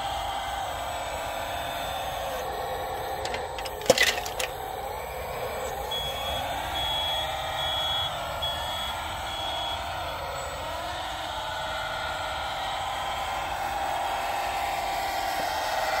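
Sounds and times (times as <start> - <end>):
electric motor and hydraulic pump whine: 0.0 - 16.0
reversing beeper: 5.4 - 10.5.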